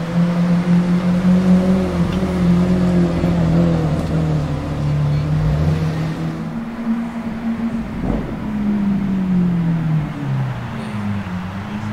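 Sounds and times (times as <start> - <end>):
car engine deep drone: 0.0 - 11.9
car passing by: 0.0 - 11.9.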